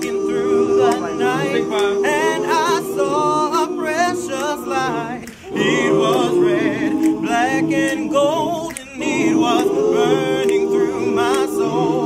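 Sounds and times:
a cappella group singing: 0:00.0 - 0:12.0.

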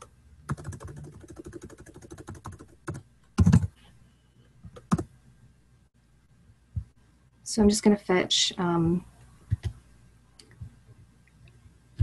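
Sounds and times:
fast typing on computer keyboard: 0:00.5 - 0:03.7, 0:04.8 - 0:05.0.

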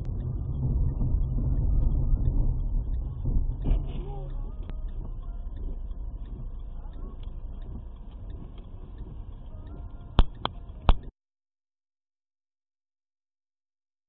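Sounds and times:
car engine rumble: 0:00.0 - 0:11.1
road noise inside car: 0:00.0 - 0:11.1.

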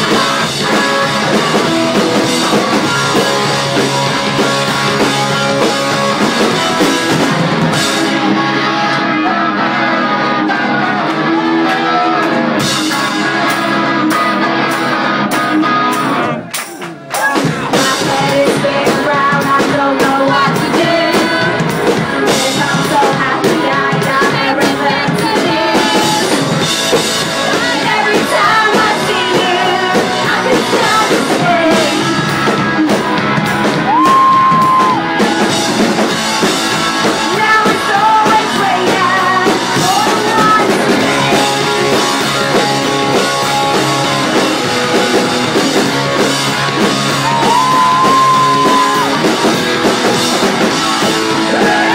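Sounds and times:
drum kit: 0:00.0 - 0:51.9
electric guitars: 0:00.0 - 0:51.9
sung vocals: 0:17.1 - 0:35.5, 0:36.6 - 0:43.1, 0:50.6 - 0:51.9.

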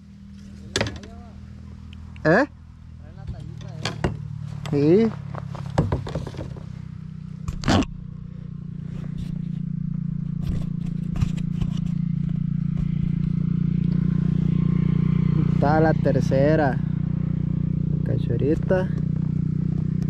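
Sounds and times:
low motor hum: 0:00.0 - 0:20.0
clicks and scrapes of gear: 0:10.3 - 0:12.1.

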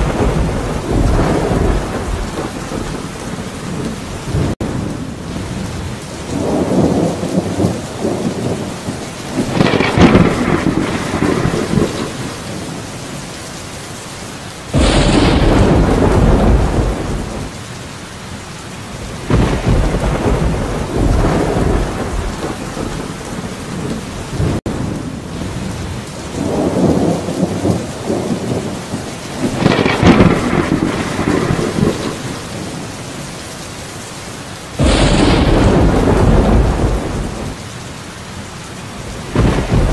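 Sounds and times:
loud thunderclap: 0:00.0 - 0:05.0, 0:06.3 - 0:12.8, 0:14.7 - 0:17.6, 0:19.2 - 0:24.8, 0:26.4 - 0:32.8, 0:34.8 - 0:37.6, 0:39.0 - 0:39.9
thunder rolling: 0:00.0 - 0:12.8, 0:14.7 - 0:17.6, 0:19.0 - 0:25.6, 0:26.4 - 0:32.9, 0:34.8 - 0:37.6, 0:39.0 - 0:39.9
steady rain: 0:00.0 - 0:39.9.

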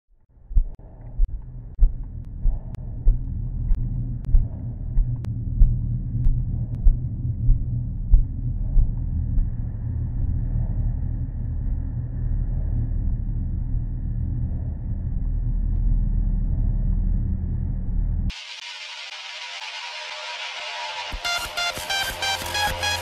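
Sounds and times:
muffled vehicle rumble: 0:00.2 - 0:18.3.

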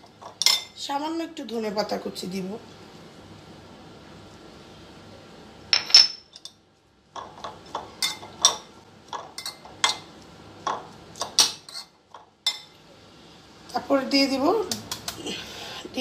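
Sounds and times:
metal spoon clinking in ceramic bowl: 0:00.2 - 0:00.8, 0:07.2 - 0:10.0.

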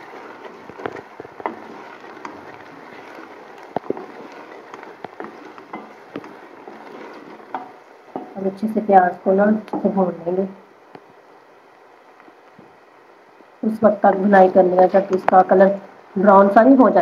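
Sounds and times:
wooden spoon scraping a pot: 0:00.0 - 0:10.2
onions sizzling in hot oil: 0:00.0 - 0:11.5.

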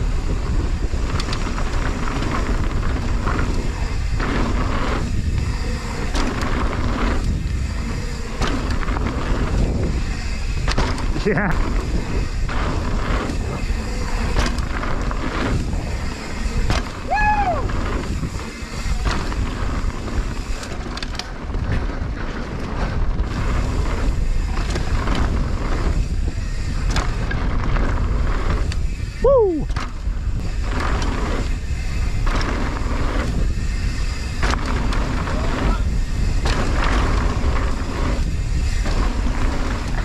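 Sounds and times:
bike knocks and rattles: 0:00.0 - 0:40.0
bike tyres rolling on dirt: 0:00.0 - 0:40.0.

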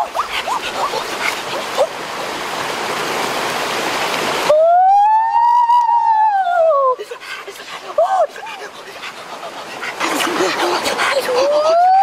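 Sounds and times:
rushing stream water: 0:00.0 - 0:12.0
boy's long yell: 0:04.5 - 0:07.0.

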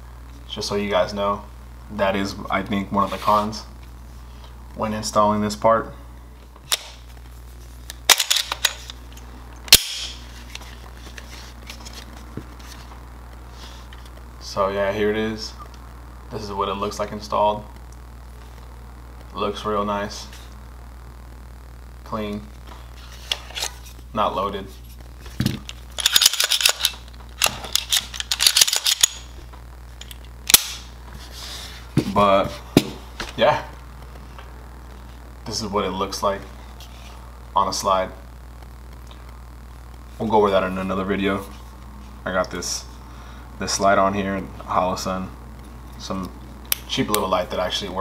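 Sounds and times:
sharp metal clicks: 0:26.0 - 0:29.3.

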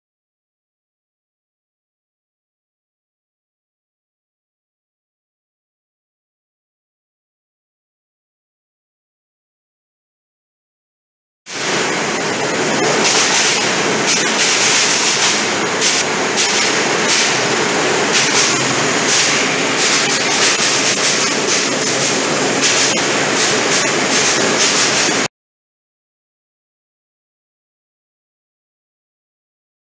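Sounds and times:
processing line running: 0:11.5 - 0:25.3.

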